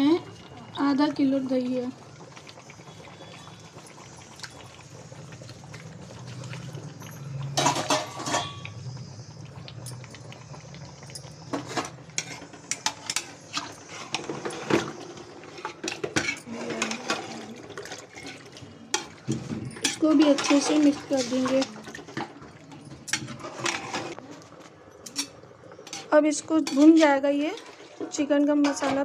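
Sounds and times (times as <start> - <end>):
metal spoon scraping a pot: 7.6 - 8.7, 11.5 - 22.3, 23.0 - 24.2, 25.1 - 29.0.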